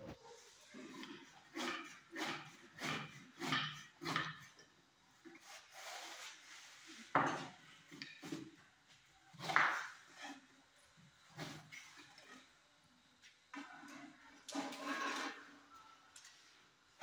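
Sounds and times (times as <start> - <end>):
rolling pin rubbing dough: 0.0 - 4.6, 5.2 - 8.6.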